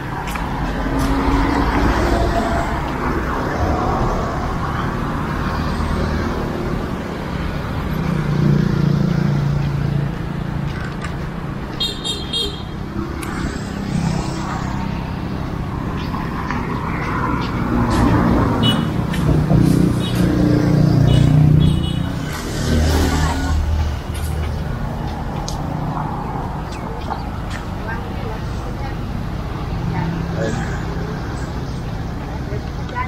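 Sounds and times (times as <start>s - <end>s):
passing cars and motorbikes: 0.0s - 33.0s.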